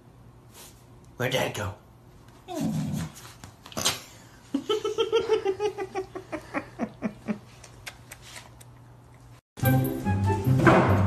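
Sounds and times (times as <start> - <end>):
person giggling: 4.5 - 7.8.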